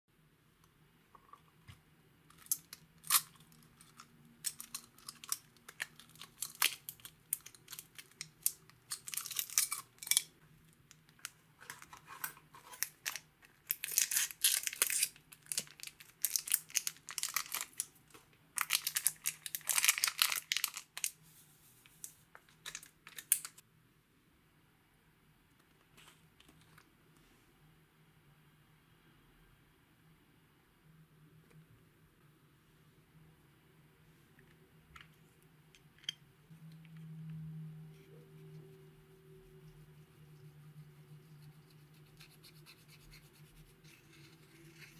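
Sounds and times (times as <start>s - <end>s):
plastic sachet crinkling: 2.4s - 10.3s, 12.7s - 17.9s, 18.6s - 21.2s, 22.6s - 23.6s.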